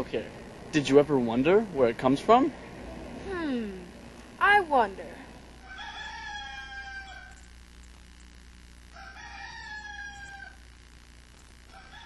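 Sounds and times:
faint low hum: 0.0 - 12.0
rooster crowing: 5.6 - 7.5, 8.9 - 10.6, 11.7 - 12.0.

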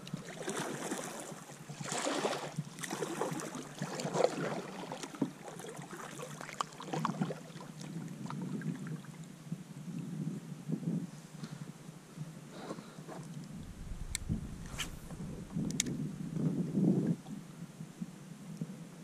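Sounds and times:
kayak paddle splashing water: 0.2 - 7.9.

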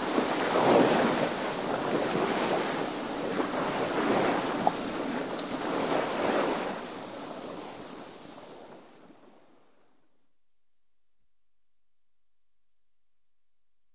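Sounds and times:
wind on microphone: 0.0 - 9.4
waves splashing along hull: 0.0 - 9.6.

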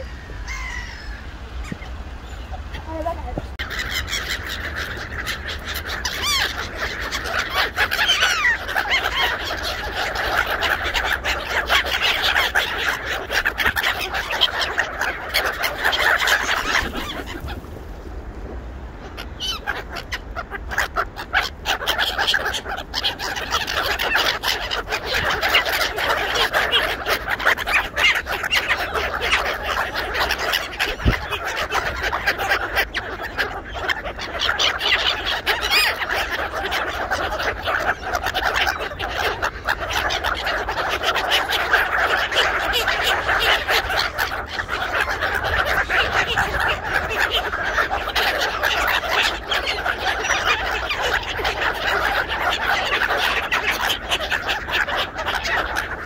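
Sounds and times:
gulls ducks and geese calling: 0.0 - 56.0.

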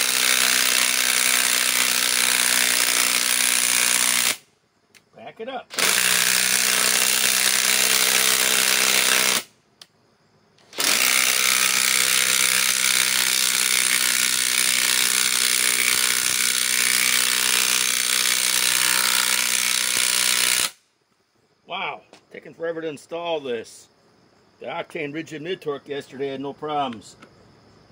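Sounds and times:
impact wrench hammering screw into log: 0.0 - 4.4, 5.8 - 9.5, 10.8 - 20.8.

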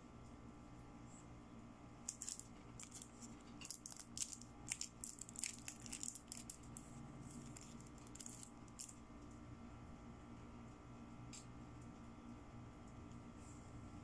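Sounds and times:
plastic crinkling and clicking: 2.1 - 6.8, 7.4 - 9.0.

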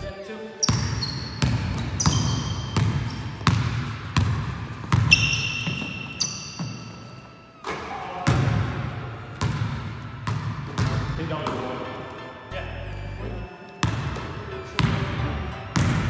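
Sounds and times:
sneaker squeak on court: 0.6 - 4.3, 4.9 - 8.6
basketball bouncing on wooden floor: 0.7 - 7.0, 7.7 - 11.6, 15.8 - 16.0.

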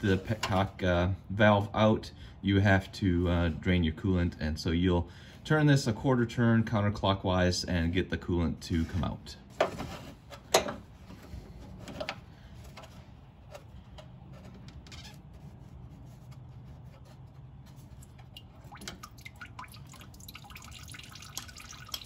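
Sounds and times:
coolant dripping into bucket: 17.8 - 22.0.

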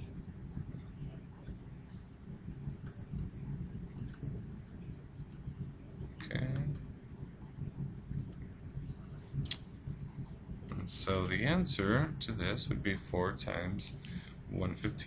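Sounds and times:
steady low hum: 0.0 - 15.0
computer mouse clicks: 2.7 - 4.3, 8.1 - 8.4.

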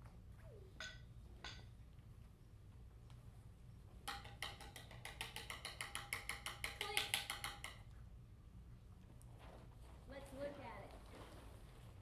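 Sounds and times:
rapid percussion tapping: 4.0 - 7.8.

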